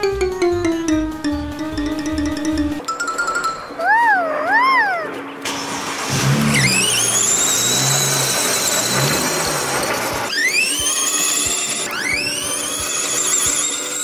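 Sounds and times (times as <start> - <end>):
electric motor whining: 6.1 - 14.0.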